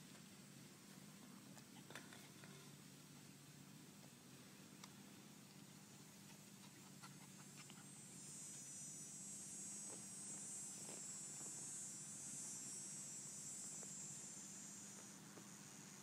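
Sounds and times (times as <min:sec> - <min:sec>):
high-pitched buzz: 0:07.9 - 0:16.0.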